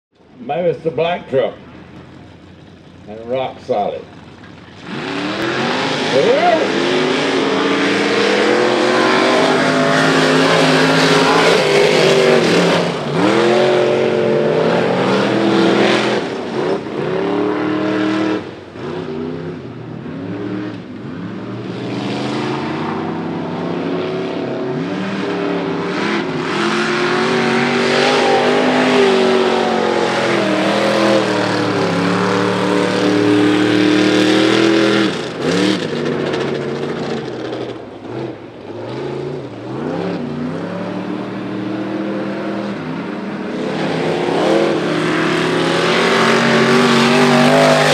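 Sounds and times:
truck engine revving: 0:00.7 - 0:47.9
tyres throwing dirt and mud: 0:42.3 - 0:47.9.

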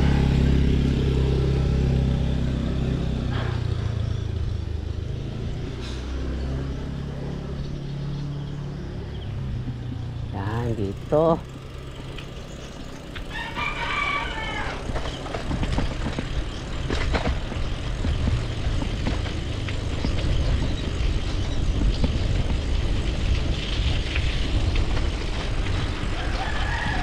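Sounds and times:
bicycle riding on concrete: 0:00.0 - 0:27.0
wind rumble on microphone: 0:12.1 - 0:27.0
rooster crowing: 0:13.3 - 0:14.8, 0:26.1 - 0:27.0.

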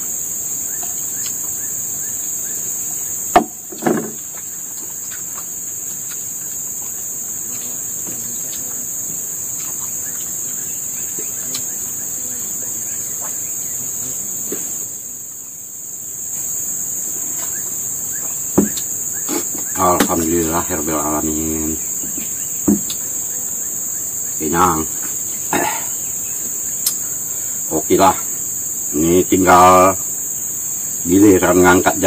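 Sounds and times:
insects chirping: 0:00.0 - 0:32.0
sharp knock: 0:03.3 - 0:04.2.

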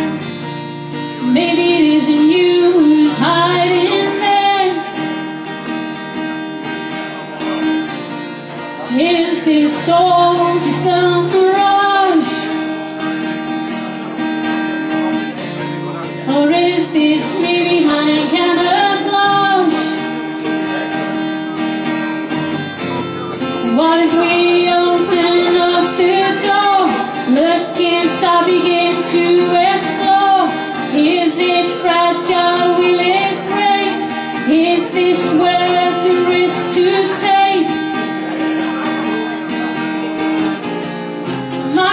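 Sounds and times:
strummed acoustic guitar: 0:00.0 - 0:41.9
woman singing: 0:01.2 - 0:05.2, 0:08.9 - 0:12.8, 0:16.3 - 0:20.0, 0:23.6 - 0:38.0, 0:41.5 - 0:41.9.

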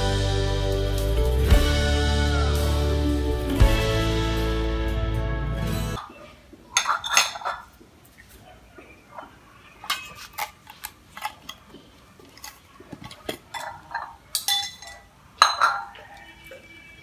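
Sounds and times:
ceramic bowls clinking and knocking: 0:06.8 - 0:07.7, 0:13.3 - 0:16.2.

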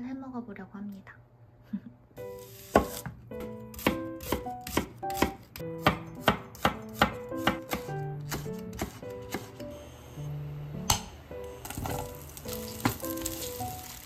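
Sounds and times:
knife chopping on wooden board: 0:02.7 - 0:09.6.

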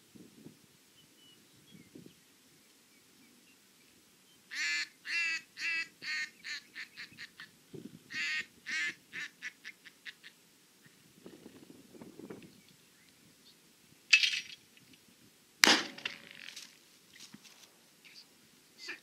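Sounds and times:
duck call quacks: 0:04.5 - 0:07.5, 0:08.1 - 0:10.3.

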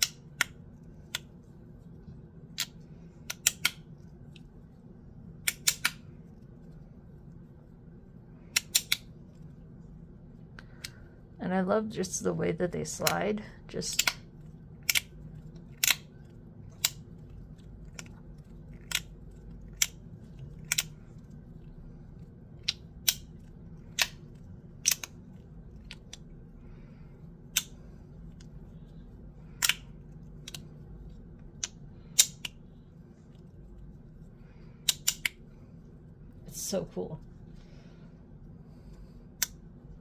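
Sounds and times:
fidget toy clicking: 0:08.5 - 0:09.1.

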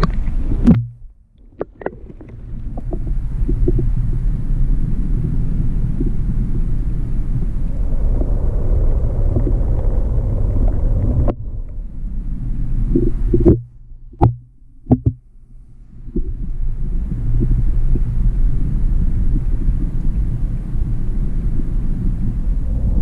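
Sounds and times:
muffled underwater river rumble: 0:00.0 - 0:23.0
sharp knocks: 0:13.4 - 0:15.2.

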